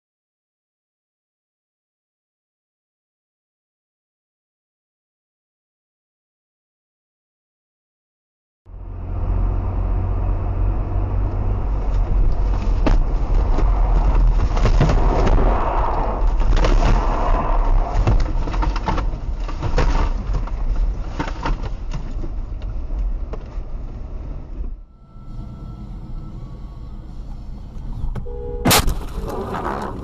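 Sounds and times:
road and tyre rumble: 8.7 - 30.0
sharp knocks and thuds: 12.4 - 15.4.

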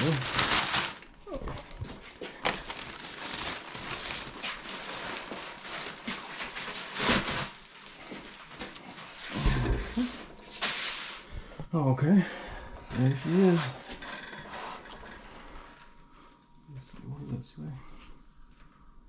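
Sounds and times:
plastic bag rustling: 0.0 - 11.2.

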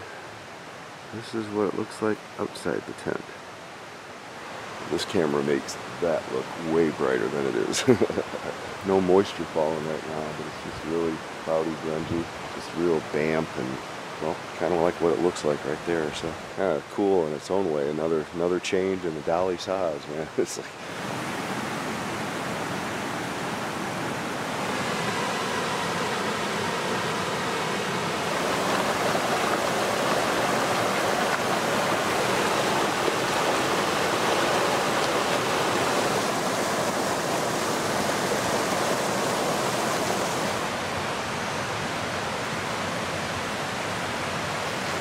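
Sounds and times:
steady rushing noise: 20.1 - 45.0.

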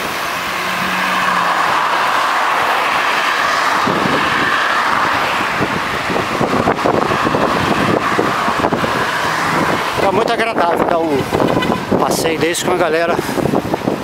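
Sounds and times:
road traffic: 0.0 - 14.0
wind buffeting microphone: 1.5 - 14.0.

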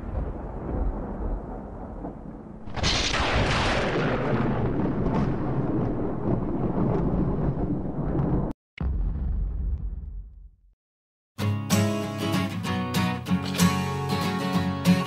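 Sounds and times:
loud boom burst: 0.0 - 10.7
low rumble: 0.1 - 10.7.

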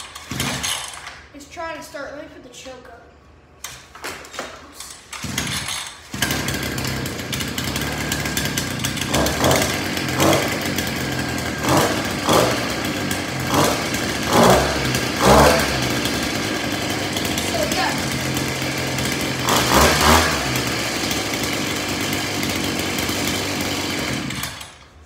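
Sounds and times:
small two-stroke engine starting: 0.0 - 1.3, 5.0 - 25.0
engine throttle blips: 6.2 - 24.5.

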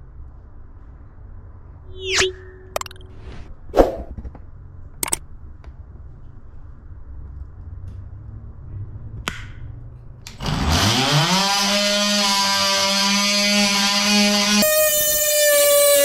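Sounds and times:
multi-tool motor whine: 10.4 - 16.0.

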